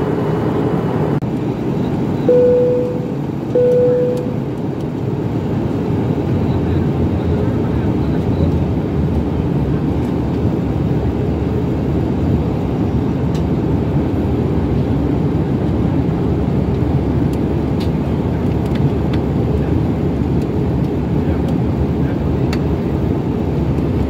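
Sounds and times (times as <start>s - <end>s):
airliner cabin engine noise: 0.0s - 24.0s.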